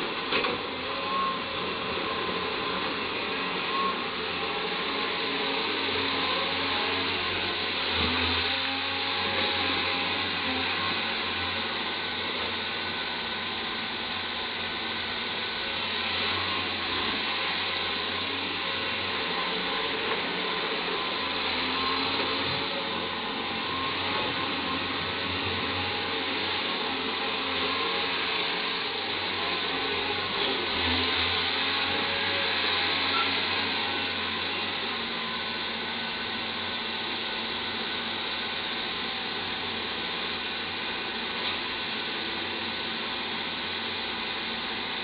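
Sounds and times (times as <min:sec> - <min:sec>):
excavator diesel engine and hydraulics: 0:00.0 - 0:45.0.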